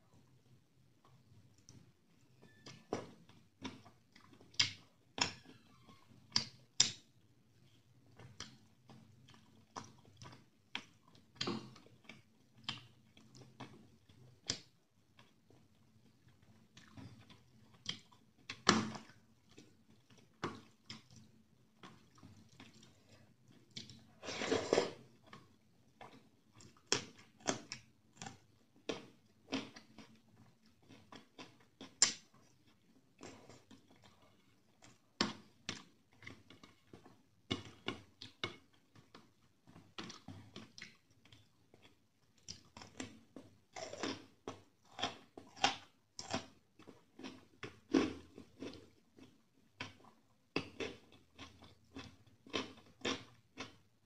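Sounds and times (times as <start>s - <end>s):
close chewing and wet mouth smacks: 2.6s - 5.4s, 6.3s - 24.1s, 25.2s - 53.9s.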